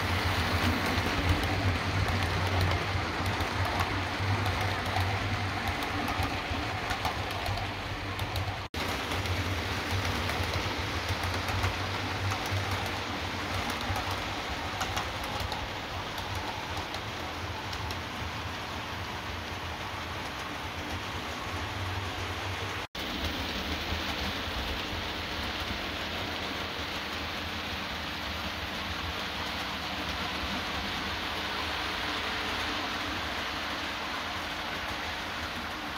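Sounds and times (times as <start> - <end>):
model train wheels rattling on rails: 0.0 - 35.9.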